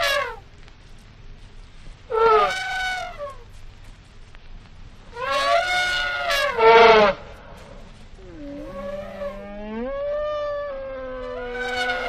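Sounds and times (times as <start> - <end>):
elephants trumpeting: 0.0 - 0.4, 2.1 - 3.5, 5.1 - 12.0.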